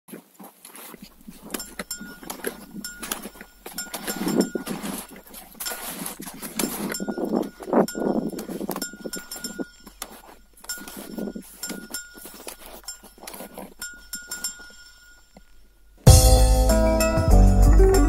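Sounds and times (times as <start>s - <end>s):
skis scraping over crusted snow: 0.1s - 14.7s
metallic clinks of ski poles: 0.7s - 16.0s.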